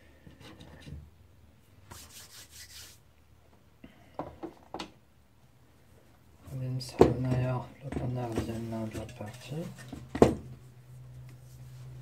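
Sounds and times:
cloth wiping plastic: 0:01.9 - 0:03.0.

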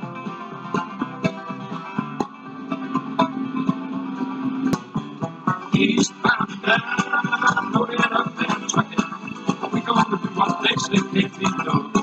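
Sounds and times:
guitar instrumental music: 0:00.0 - 0:12.0.

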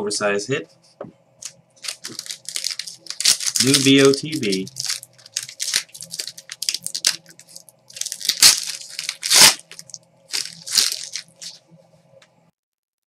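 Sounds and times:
faint steady hum: 0:00.0 - 0:12.6
card packs tearing and crinkling: 0:01.4 - 0:11.6.

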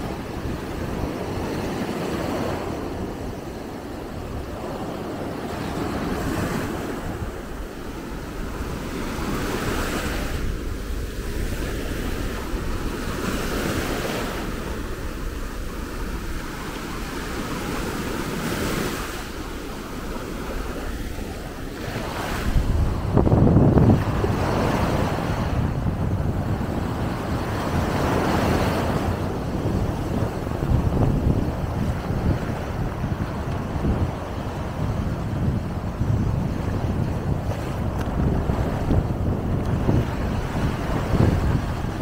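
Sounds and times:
waves breaking on beach: 0:00.0 - 0:42.0
wind buffeting microphone: 0:00.0 - 0:42.0.

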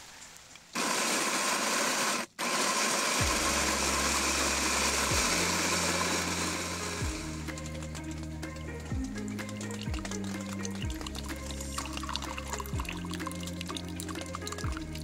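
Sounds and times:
electric coffee grinder whirring: 0:00.8 - 0:07.8
background music: 0:03.1 - 0:15.0.

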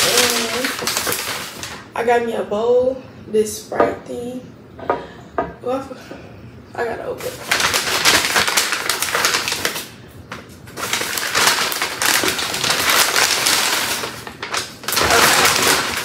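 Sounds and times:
paper bag crinkling: 0:00.0 - 0:01.9, 0:07.2 - 0:16.0.

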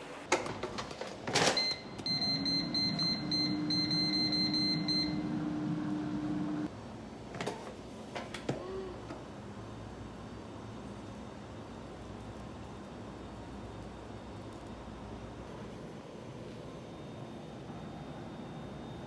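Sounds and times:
air fryer fan hum: 0:01.6 - 0:06.9.

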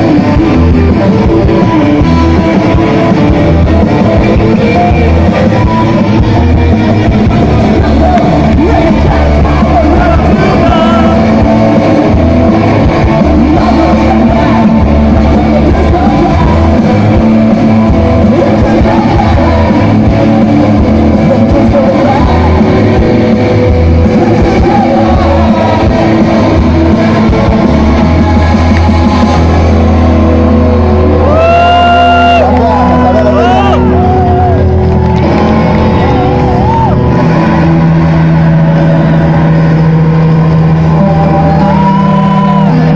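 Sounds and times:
punk band playing: 0:00.0 - 0:42.9
man shouting vocals: 0:07.8 - 0:11.4, 0:31.2 - 0:34.6.

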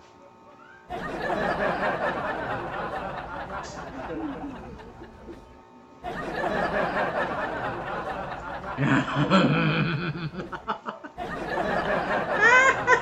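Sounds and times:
person laughing: 0:02.8 - 0:05.5, 0:06.2 - 0:13.0.

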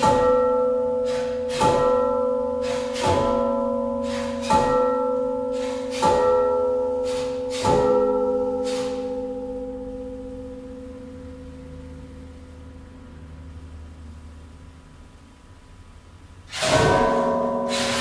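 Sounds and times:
struck bell-like notes ringing: 0:00.0 - 0:13.7, 0:16.7 - 0:18.0.

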